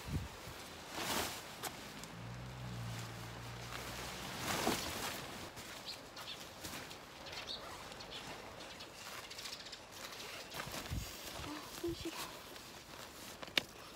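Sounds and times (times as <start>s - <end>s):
tent fabric whoosh: 0.0s - 5.6s
tent fabric rustling: 0.0s - 13.9s.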